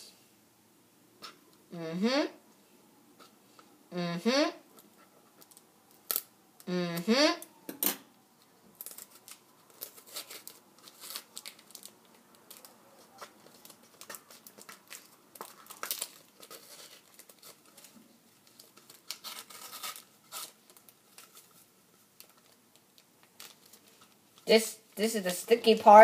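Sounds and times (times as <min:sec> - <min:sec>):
plastic wrapper crinkling and tearing: 0:08.7 - 0:24.5.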